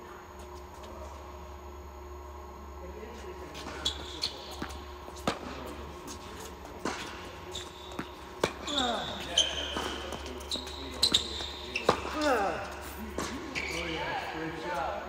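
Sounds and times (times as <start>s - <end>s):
shoes squeaking: 3.3s - 15.0s
tennis ball bouncing on court: 3.6s - 12.2s
tennis ball struck by rackets: 4.5s - 5.7s, 7.9s - 8.7s.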